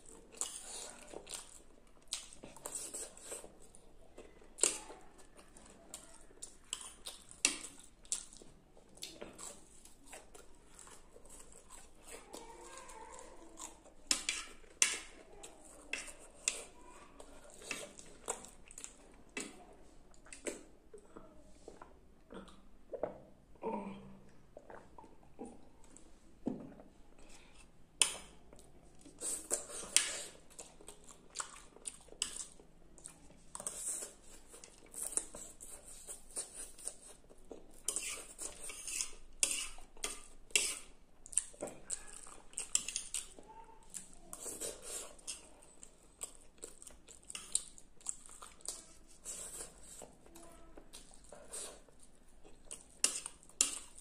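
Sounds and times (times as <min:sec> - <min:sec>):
slurping and chewing noodles: 0:00.0 - 0:23.2, 0:27.1 - 0:54.0
metal spoon scraping a plate: 0:37.9 - 0:39.8.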